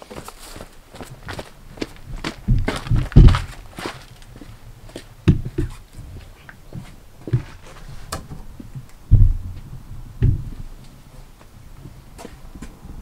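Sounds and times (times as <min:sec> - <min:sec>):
dull heavy thumps: 0:02.0 - 0:04.0, 0:05.2 - 0:11.0.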